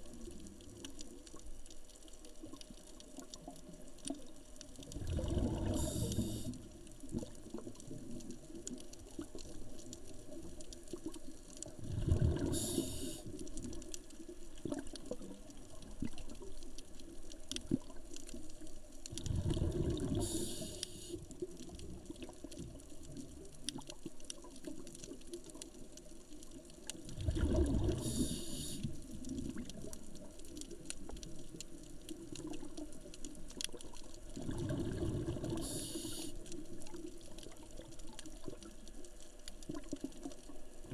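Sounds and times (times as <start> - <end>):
faint clicks: 0.0 - 11.8, 12.4 - 40.9
underwater exhaled air bubbling: 0.0 - 25.8, 26.4 - 40.9
regulator hiss: 5.8 - 6.5, 12.5 - 13.3, 20.2 - 21.2, 28.0 - 29.0, 35.6 - 36.4.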